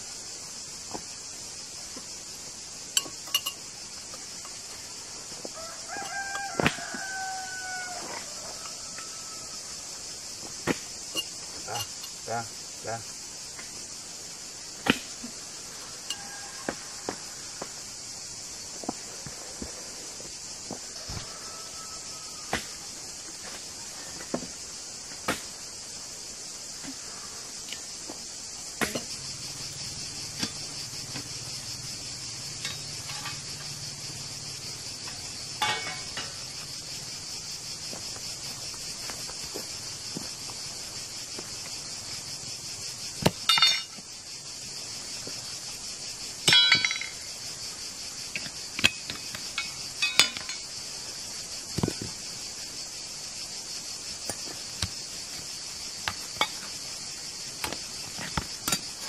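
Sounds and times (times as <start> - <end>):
insects chorus: 0.0 - 59.0
sharp clinks and knocks: 3.0 - 4.6, 11.1 - 12.2, 32.5 - 33.6, 35.6 - 36.6, 43.2 - 44.0, 46.5 - 47.3, 48.3 - 50.7.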